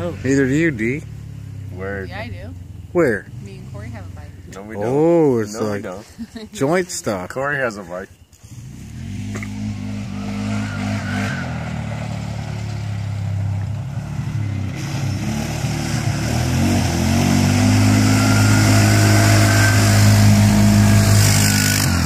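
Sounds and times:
quad bike engine running: 14.8 - 22.0.

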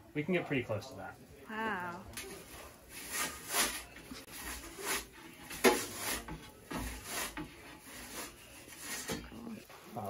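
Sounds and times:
pizza peel scraping on stone: 2.2 - 9.4.

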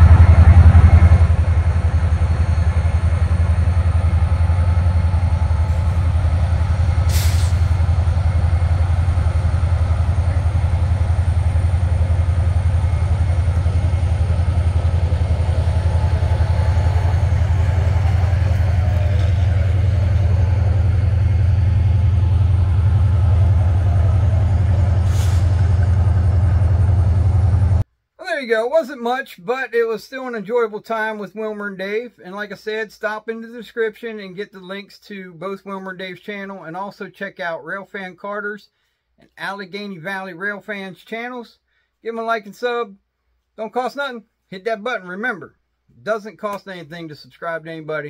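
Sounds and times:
diesel locomotives idling: 0.0 - 27.8
short hiss: 7.1 - 7.8, 24.9 - 25.7.

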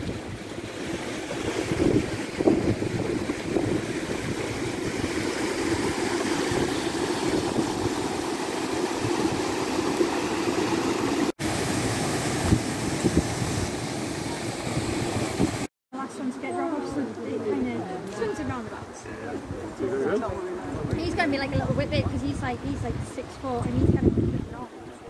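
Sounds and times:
stream rushing over rocks: 0.0 - 15.7.

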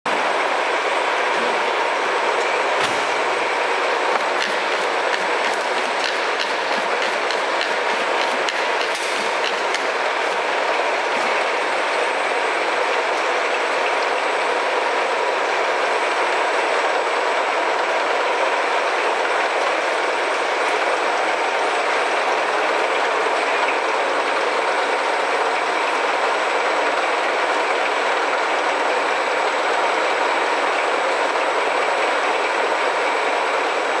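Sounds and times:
machinery clatter: 4.1 - 11.7.

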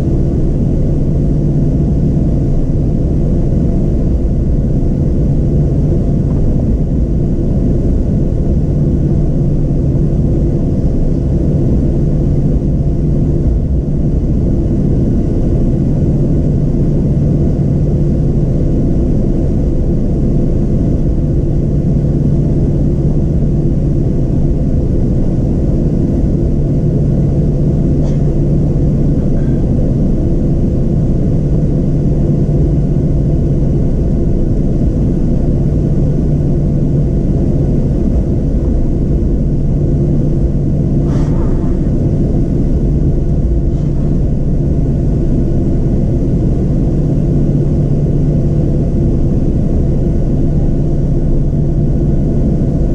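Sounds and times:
continuous rumble: 0.0 - 52.9
jet engine droning hum: 0.0 - 52.9.

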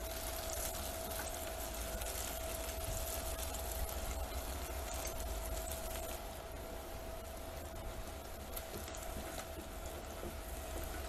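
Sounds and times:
food sizzling in hot oil: 0.0 - 6.2.

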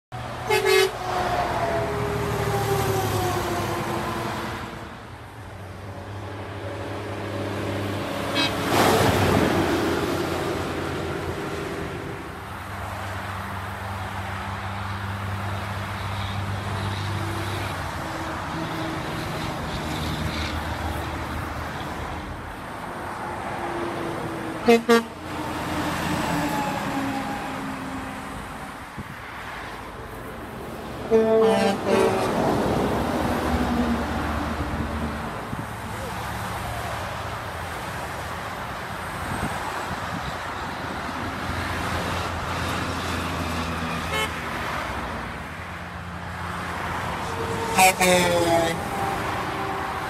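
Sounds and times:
highway traffic: 0.1 - 50.0
diesel truck engine passing: 0.2 - 50.0
truck air horn toot: 0.4 - 1.1, 8.3 - 8.8, 24.6 - 25.2, 31.1 - 32.4, 44.0 - 44.4, 47.2 - 50.0.

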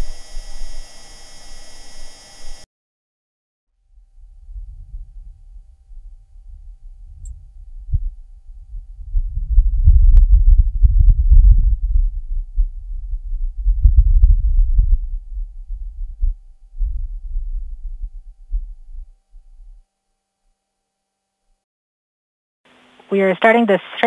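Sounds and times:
gusty wind rumble: 3.9 - 19.1.

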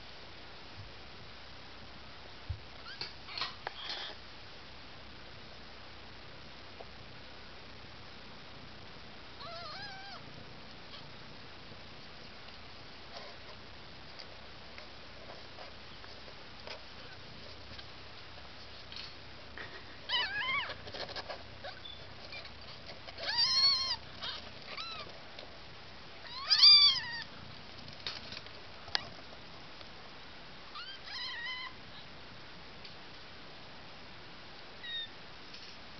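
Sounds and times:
kittens mewing: 9.4 - 10.2, 19.7 - 21.0, 21.6 - 25.1.

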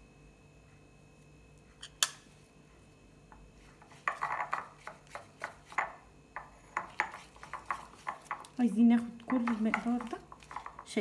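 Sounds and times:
spoon scraping a ceramic mug: 3.8 - 8.5.

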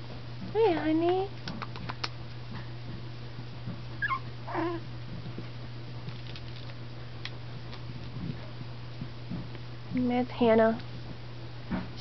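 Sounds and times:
steady low hum: 0.0 - 12.0
puppy crying: 4.0 - 4.8.

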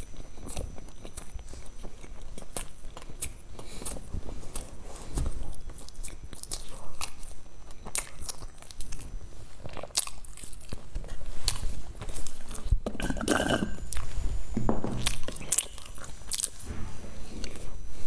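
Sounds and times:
chewing crunchy food: 0.0 - 14.2, 14.9 - 16.6.

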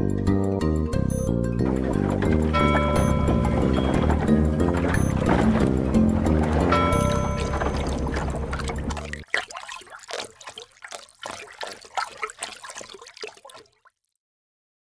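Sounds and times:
music track: 0.0 - 9.2
water lapping and splashing: 1.1 - 14.2.

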